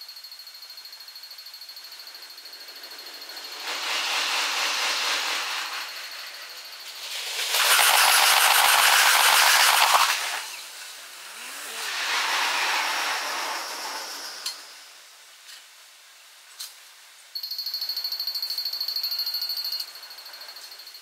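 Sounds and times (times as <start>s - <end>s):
train rushing past: 1.9s - 15.2s.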